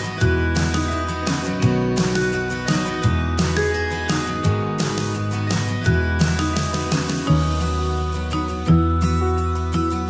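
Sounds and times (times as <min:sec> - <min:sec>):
plucked notes: 0:00.0 - 0:10.0
steady bass line: 0:00.0 - 0:10.0.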